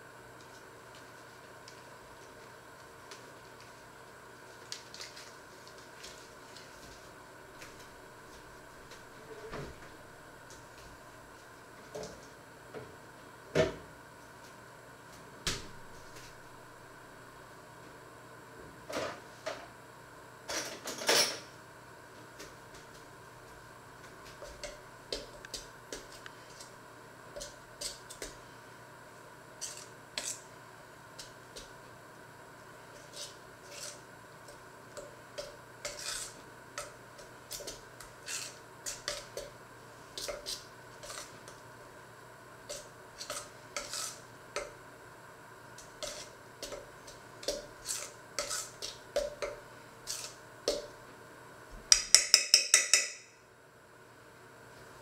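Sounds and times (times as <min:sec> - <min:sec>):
metal spoon stirring in steel bowl: 0:29.6 - 0:30.5, 0:33.0 - 0:41.6, 0:42.7 - 0:44.7, 0:45.8 - 0:50.9, 0:51.9 - 0:53.3.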